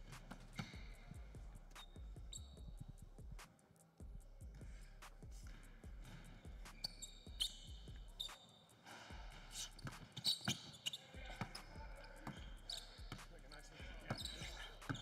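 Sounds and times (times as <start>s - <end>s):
sneaker squeaks on floor: 0.0s - 2.8s, 5.5s - 8.7s, 9.5s - 15.0s.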